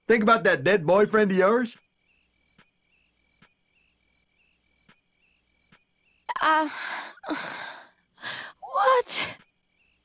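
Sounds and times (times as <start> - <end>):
cricket chirps: 0.0 - 10.0
woman crying outbursts: 8.5 - 9.4.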